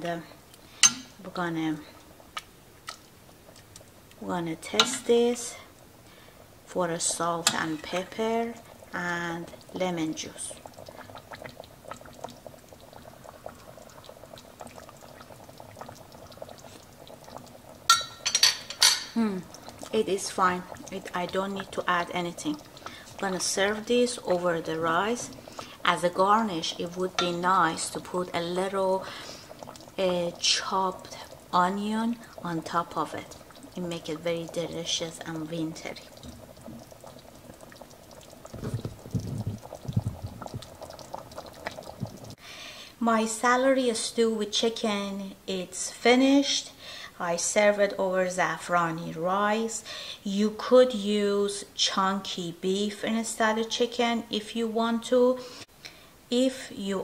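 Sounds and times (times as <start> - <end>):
soft simmering hiss: 0.0 - 57.0
stew bubbles popping: 1.8 - 5.9, 7.4 - 42.4.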